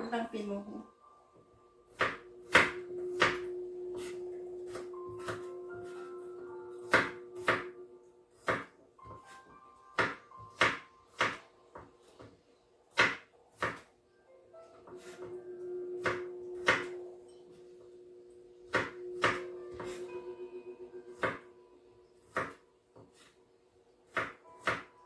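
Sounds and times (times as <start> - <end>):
knife chopping on wooden board: 1.9 - 6.0, 6.8 - 7.7, 8.4 - 9.4, 10.0 - 11.9, 12.9 - 13.9, 16.0 - 17.0, 18.7 - 20.0, 21.2 - 21.4, 22.3 - 23.3, 24.1 - 25.0.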